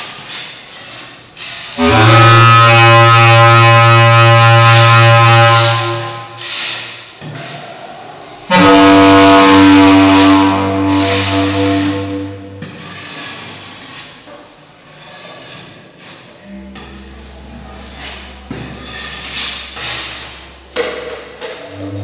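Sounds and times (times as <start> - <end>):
slow music of held low chords: 16.4 - 22.0.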